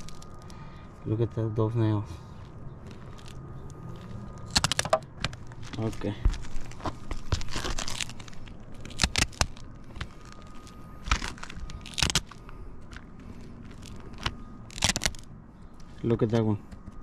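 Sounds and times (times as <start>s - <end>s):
roof shingles scraping and crackling: 2.9s - 15.3s.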